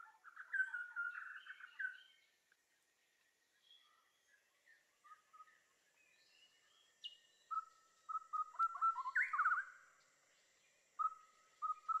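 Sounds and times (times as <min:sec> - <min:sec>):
birds chirping and whistling: 0:00.0 - 0:02.2, 0:05.0 - 0:09.8, 0:11.0 - 0:12.0.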